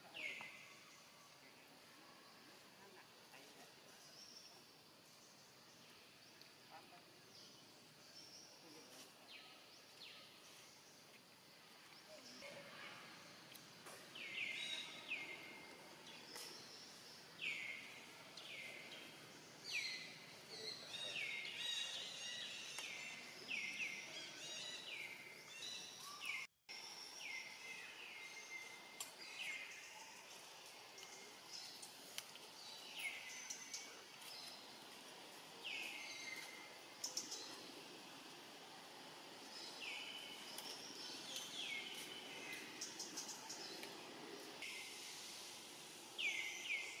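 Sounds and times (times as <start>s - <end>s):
faint background hiss: 0.0s - 47.0s.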